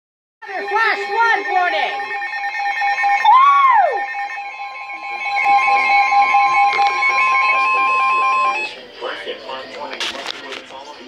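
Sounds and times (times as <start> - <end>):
lower steady alarm tone: 0.4 - 8.8
sweeping alarm tone: 0.4 - 8.8
rapid high beeping: 0.4 - 8.9
steady high alarm tone: 0.4 - 8.9.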